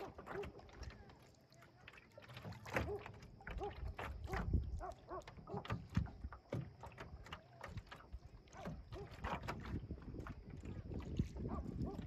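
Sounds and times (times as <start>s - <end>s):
waves lapping against canoe hull: 0.0s - 12.0s
wind rumble on microphone: 3.8s - 6.4s, 7.8s - 12.0s.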